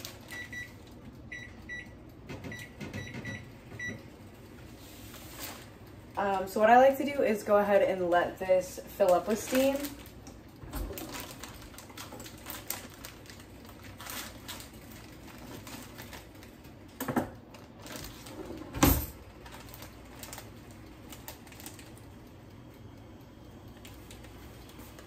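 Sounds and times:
plastic bag being handled: 0:04.8 - 0:05.9, 0:09.0 - 0:16.7, 0:17.5 - 0:18.6, 0:19.3 - 0:22.0.

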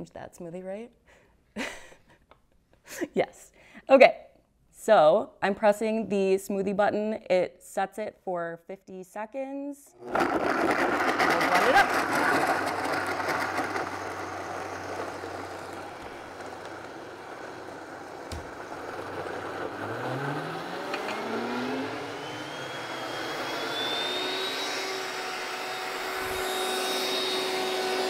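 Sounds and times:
blender motor running: 0:10.0 - 0:28.0.

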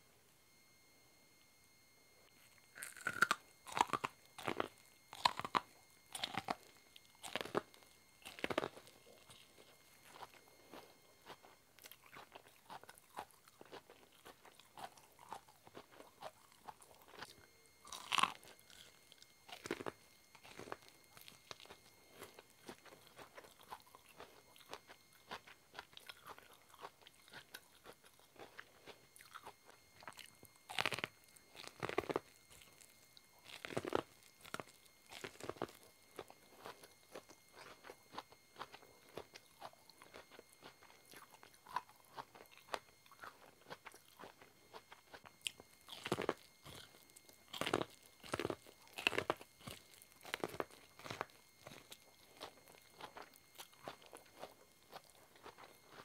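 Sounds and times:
chewing: 0:02.4 - 0:56.0
crunching bites into corn: 0:02.7 - 0:09.5, 0:17.9 - 0:22.4, 0:29.3 - 0:32.8, 0:33.4 - 0:37.8, 0:39.2 - 0:56.0.

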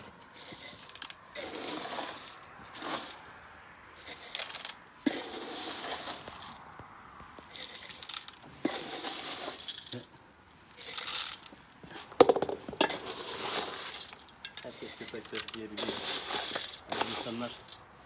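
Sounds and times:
kibble rattling into metal pots: 0:00.0 - 0:03.3, 0:04.0 - 0:04.8, 0:07.5 - 0:10.1, 0:10.8 - 0:11.6, 0:12.2 - 0:17.9.

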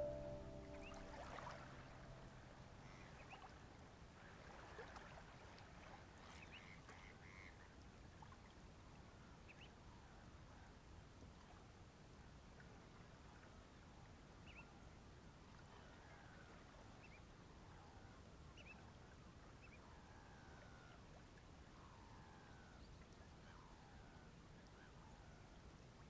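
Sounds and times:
low steady background rumble: 0:00.0 - 0:03.2.

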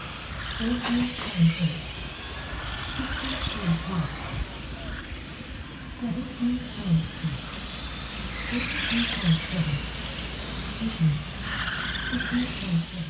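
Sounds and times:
rc car motors whining: 0:00.0 - 0:13.0.

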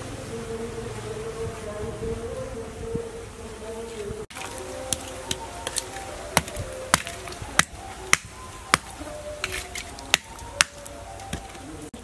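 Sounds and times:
charcoal lumps knocked apart: 0:04.3 - 0:11.7.

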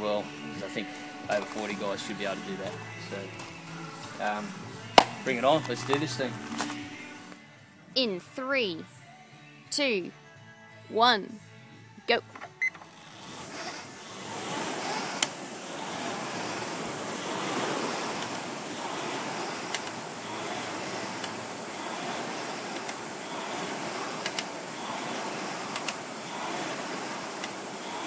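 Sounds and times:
rowing machine flywheel whoosh: 0:12.9 - 0:28.0
sharp clicks: 0:19.6 - 0:20.0, 0:23.8 - 0:24.6, 0:25.2 - 0:26.0.

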